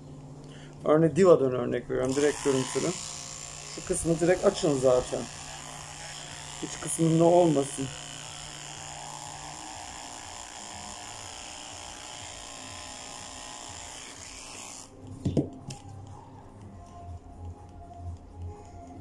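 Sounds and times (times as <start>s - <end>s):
electric clippers buzzing: 2.0s - 15.1s.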